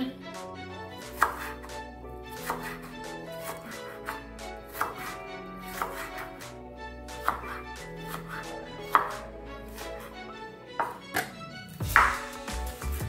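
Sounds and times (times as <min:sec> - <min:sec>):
soft background music: 0:00.0 - 0:13.0
knife chopping on wooden board: 0:01.2 - 0:01.6, 0:02.4 - 0:06.2, 0:07.2 - 0:10.1, 0:10.8 - 0:13.0.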